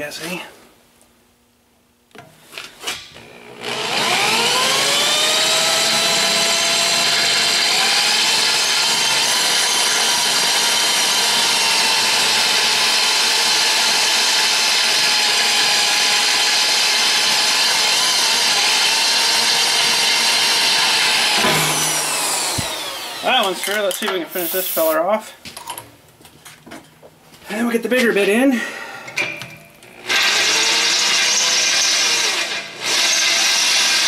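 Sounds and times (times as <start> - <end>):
electric drill boring metal: 3.2 - 24.5, 29.9 - 34.0
drill clicks: 17.6 - 24.2.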